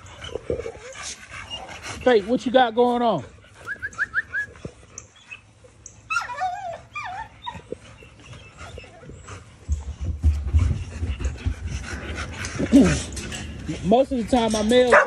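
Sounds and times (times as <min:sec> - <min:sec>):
dogs whining: 0:00.0 - 0:02.2, 0:03.6 - 0:10.2.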